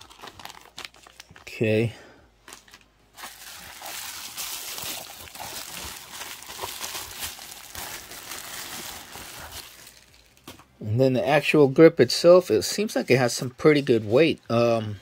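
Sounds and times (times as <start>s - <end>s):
plastic packaging rustling: 0.0s - 1.7s, 2.4s - 10.6s.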